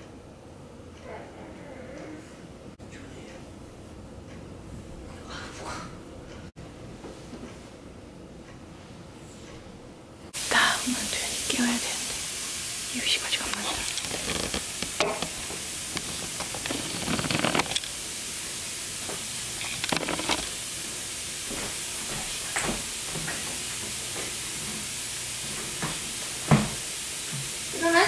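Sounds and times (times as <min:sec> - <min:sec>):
steady hiss: 0:10.3 - 0:28.0
bedding rustling and knocking: 0:13.6 - 0:17.9.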